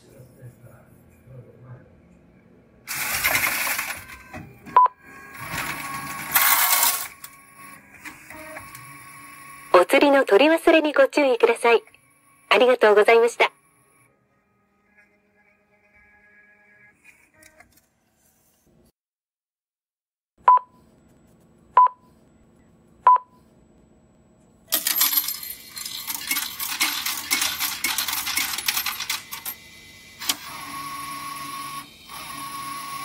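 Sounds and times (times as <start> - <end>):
coins clattering into machine: 2.9 - 4.1, 5.6 - 7.3, 24.7 - 29.6
ticket printer whine: 2.9 - 10.8, 11.5 - 17.8, 24.7 - 33.0.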